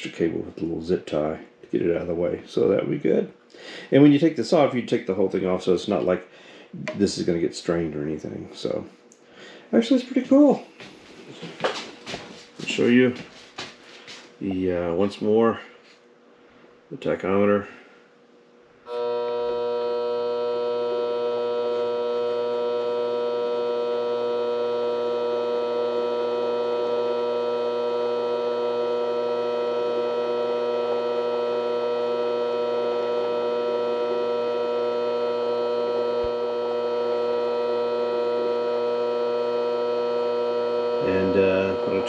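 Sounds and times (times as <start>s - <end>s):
lathe motor whine: 18.9s - 42.0s.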